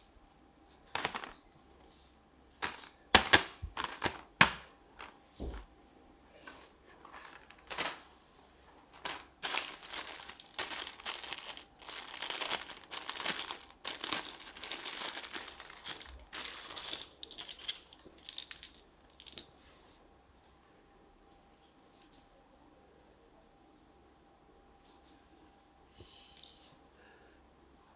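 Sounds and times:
plastic bag crinkling: 7.0s - 8.0s, 9.0s - 18.8s.

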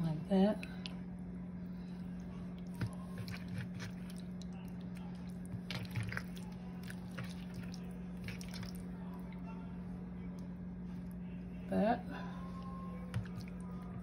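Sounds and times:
steady low hum: 0.0s - 14.0s
wet squelching of raw chicken: 1.8s - 9.0s.

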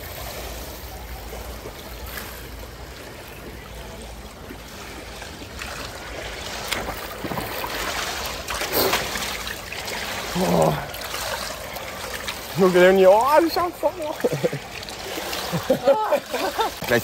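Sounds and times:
pool water sloshing and splashing: 0.0s - 17.0s.

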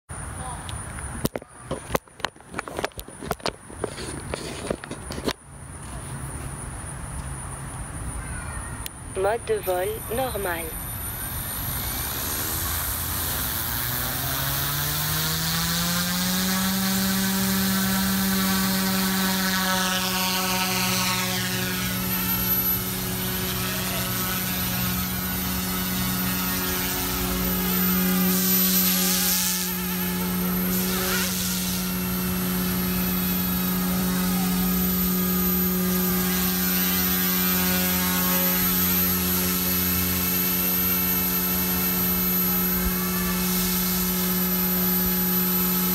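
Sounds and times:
rc helicopter motor whine: 9.2s - 45.9s.

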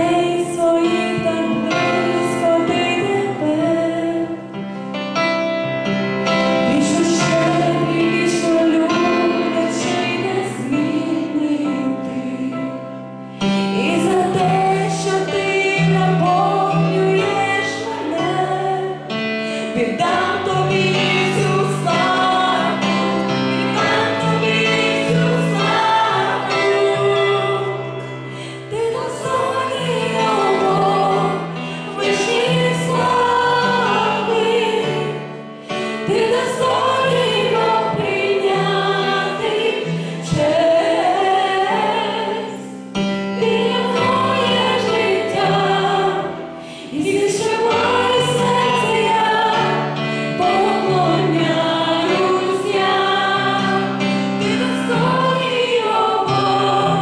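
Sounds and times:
women's vocal group singing: 0.0s - 4.4s, 6.5s - 13.0s, 13.6s - 57.0s
keyboard: 0.0s - 57.0s.

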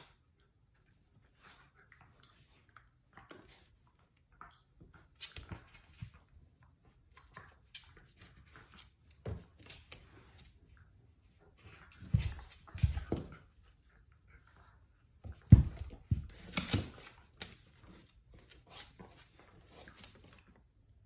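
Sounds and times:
dogs scuffling and rustling: 15.3s - 20.4s.

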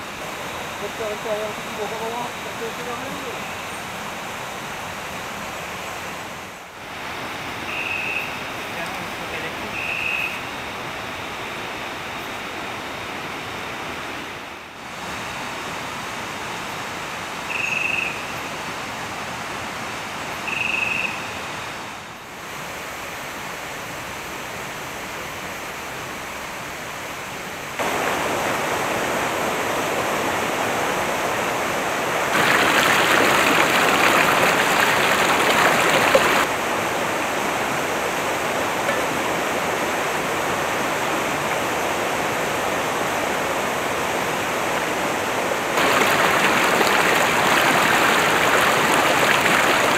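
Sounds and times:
river rushing over rocks: 27.8s - 49.9s.

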